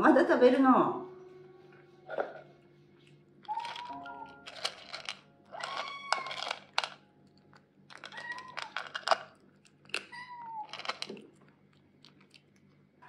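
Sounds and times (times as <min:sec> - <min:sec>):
kitten crunching dry kibble: 0:03.5 - 0:13.0
kitten meowing: 0:05.6 - 0:06.4, 0:10.1 - 0:10.7.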